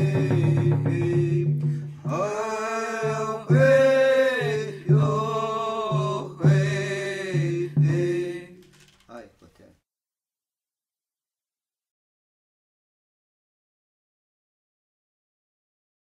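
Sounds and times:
voices chanting: 0.0 - 8.6.

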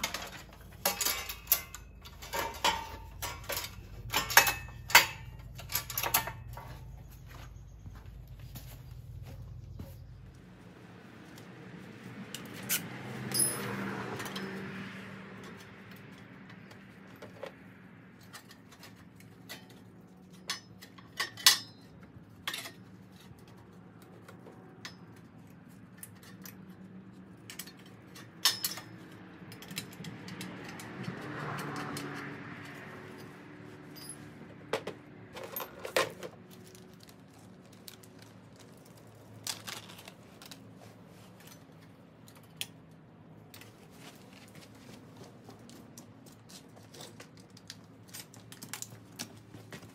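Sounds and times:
metal clinks and taps: 0.0 - 10.0, 27.4 - 36.2.

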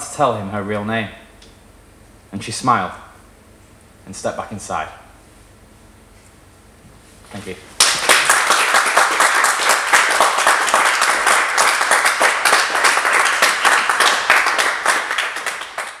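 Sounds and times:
audience applauding: 7.8 - 16.0.

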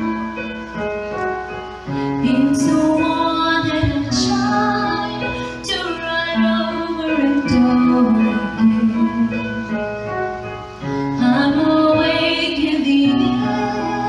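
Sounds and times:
instrumental accompaniment: 0.0 - 14.0
woman singing: 2.2 - 9.8, 11.2 - 14.0.

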